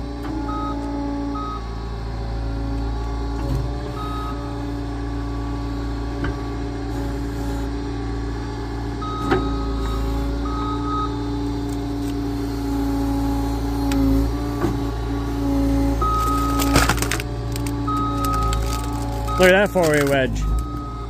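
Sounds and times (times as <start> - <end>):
reversing alarm beeping: 0.5 - 1.7, 3.9 - 4.5, 9.0 - 11.5, 15.0 - 16.8, 17.8 - 21.0
machine engine running: 1.8 - 21.0.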